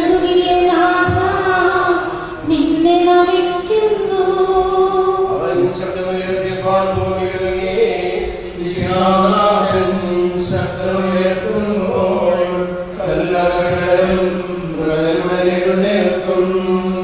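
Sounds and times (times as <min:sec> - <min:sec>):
person chanting a prayer: 0:04.9 - 0:17.0.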